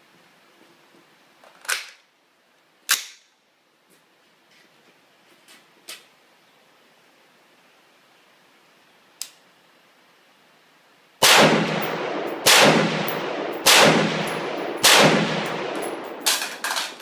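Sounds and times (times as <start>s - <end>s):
rifle bolt slamming: 11.3s - 17.0s
magazine being seated: 15.8s - 17.0s.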